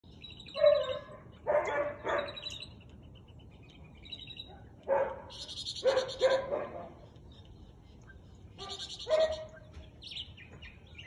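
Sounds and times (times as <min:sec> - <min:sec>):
birds chirping: 0:00.0 - 0:11.0
dog barking: 0:00.6 - 0:02.4, 0:04.5 - 0:07.0, 0:08.6 - 0:09.5.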